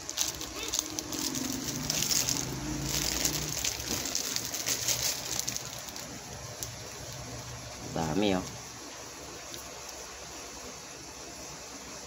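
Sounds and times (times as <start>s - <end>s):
trading cards and plastic rustling: 0.0s - 8.6s.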